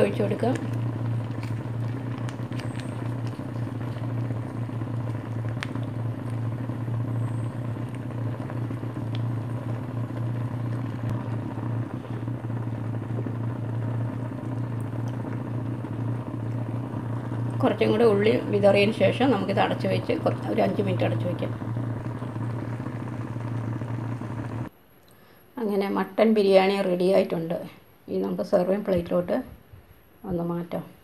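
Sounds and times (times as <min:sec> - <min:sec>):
low motor-like hum: 0:00.0 - 0:24.8.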